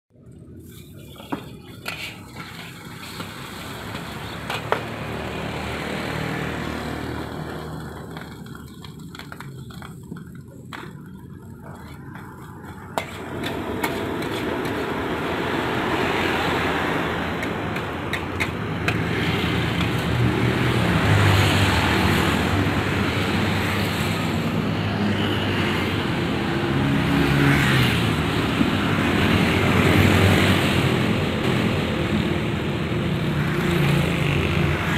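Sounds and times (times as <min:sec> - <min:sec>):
metal spatula scraping a wok: 0:00.6 - 0:04.4, 0:12.2 - 0:16.4.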